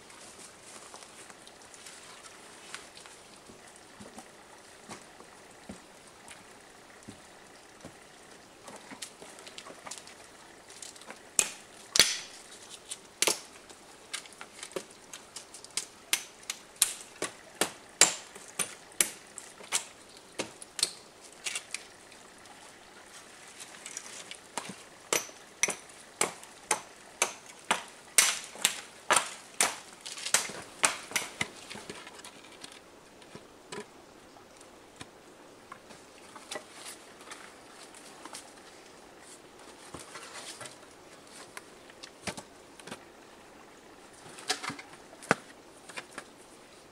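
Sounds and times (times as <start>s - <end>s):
hatchet chopping wood: 11.4s - 12.4s, 13.2s - 13.5s, 16.1s - 19.2s, 25.1s - 31.6s.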